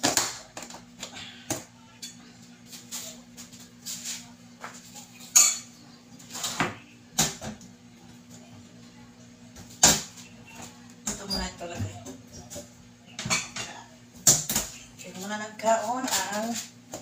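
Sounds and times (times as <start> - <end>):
dishes and spoon clinking: 5.1 - 6.7.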